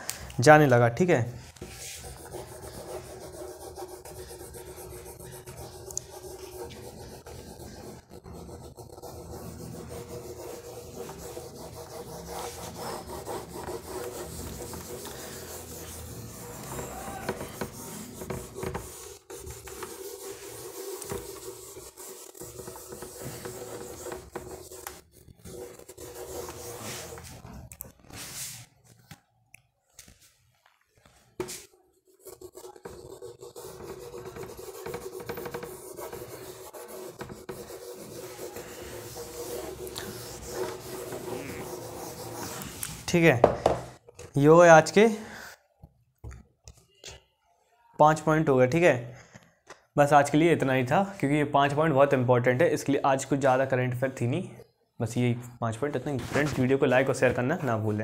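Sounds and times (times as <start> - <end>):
eraser rubbing whiteboard: 1.4 - 28.8, 31.4 - 43.2, 56.0 - 58.0.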